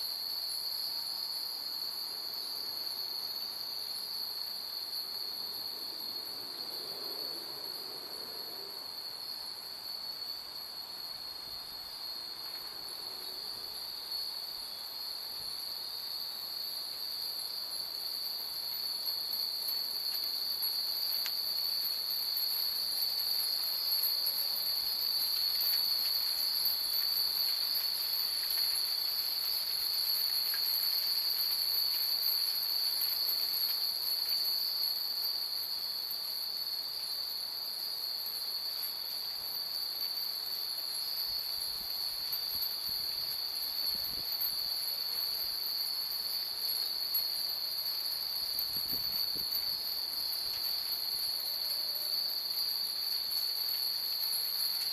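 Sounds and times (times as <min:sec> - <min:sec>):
wind chimes tinkling: 0:40.2 - 0:54.9.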